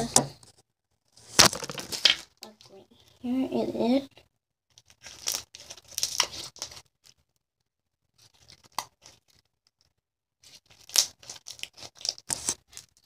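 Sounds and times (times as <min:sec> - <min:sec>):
slime squelching and popping: 0:04.8 - 0:07.2, 0:10.6 - 0:13.0.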